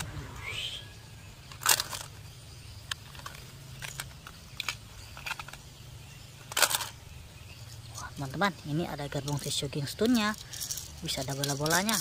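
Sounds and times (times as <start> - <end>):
plastic toy track pieces clattering: 1.4 - 5.7, 6.4 - 7.0, 9.1 - 12.0.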